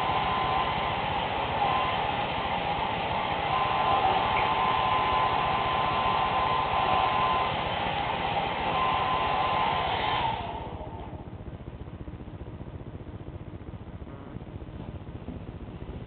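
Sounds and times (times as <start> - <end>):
hair dryer blowing: 0.0 - 11.2.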